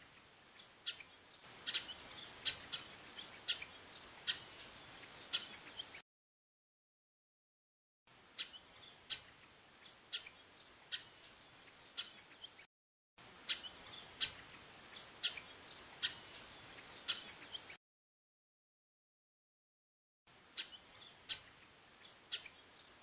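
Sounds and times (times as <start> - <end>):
high insect trill: 0.0 - 5.9, 8.1 - 12.6, 13.2 - 17.7, 20.3 - 23.0
bird giving sharp calls: 1.6 - 3.7.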